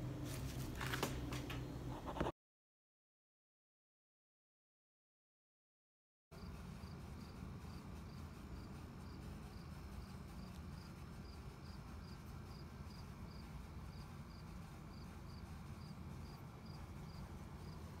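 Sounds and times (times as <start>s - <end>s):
insect chirping: 6.4s - 18.0s
low outdoor rumble: 6.4s - 18.0s.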